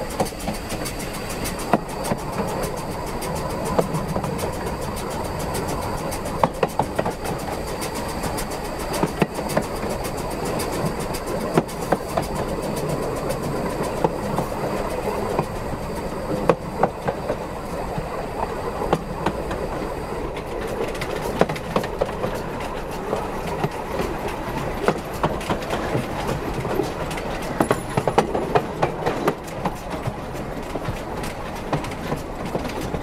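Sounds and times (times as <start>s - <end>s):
steam locomotive rolling rumble: 0.0s - 33.0s
wheels clicking over rail joints: 0.0s - 33.0s.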